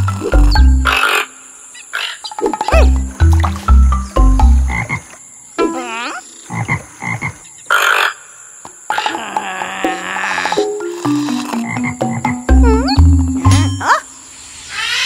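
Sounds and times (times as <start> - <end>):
deep low cartoon notes: 10.6 - 13.9
wobbling warble: 10.8 - 14.1.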